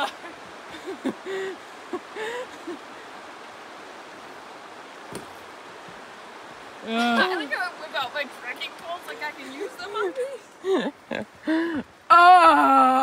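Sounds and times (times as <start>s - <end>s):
flowing water: 0.0s - 13.0s
person vocal sounds: 11.5s - 13.0s.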